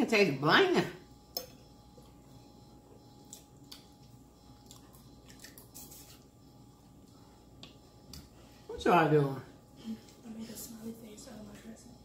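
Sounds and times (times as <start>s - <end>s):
person chewing food: 3.0s - 8.3s.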